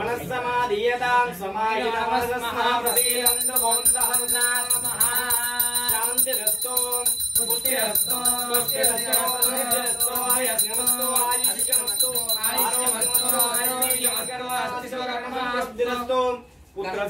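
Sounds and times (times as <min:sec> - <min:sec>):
devotional chanting: 0:00.0 - 0:16.4
hand bell ringing: 0:02.8 - 0:14.9.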